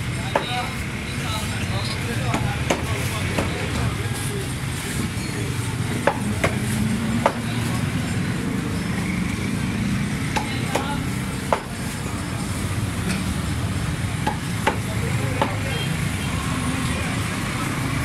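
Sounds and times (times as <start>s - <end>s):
street traffic noise: 0.0s - 18.0s
cleaver chopping on wooden block: 2.3s - 3.6s, 6.0s - 7.5s, 10.3s - 11.8s, 14.2s - 15.6s.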